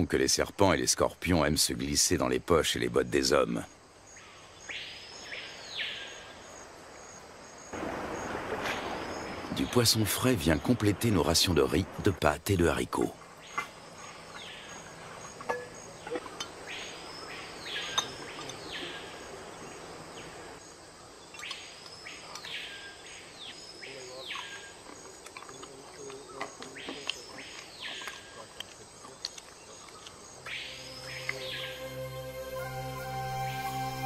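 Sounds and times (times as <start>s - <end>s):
faint high insect trill: 0.0s - 34.0s
bird whistling calls: 30.4s - 34.0s.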